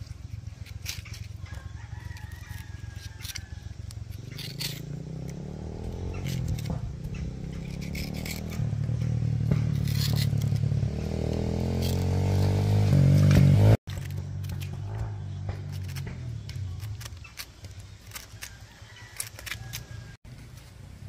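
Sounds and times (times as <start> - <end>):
knife scraping through mango: 0.0 - 20.8.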